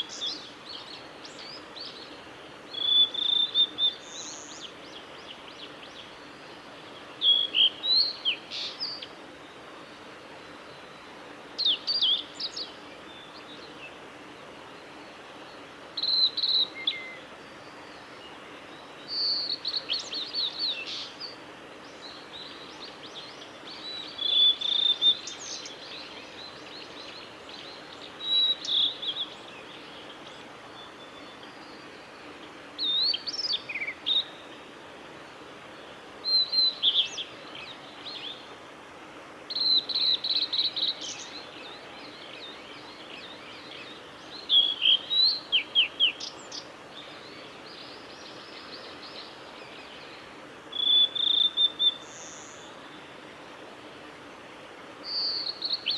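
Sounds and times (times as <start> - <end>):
bird singing whistled notes: 2.7 - 6.2, 7.2 - 9.1, 10.9 - 13.6, 16.0 - 32.2, 32.8 - 34.5, 36.2 - 38.4, 39.5 - 52.8, 55.0 - 55.9.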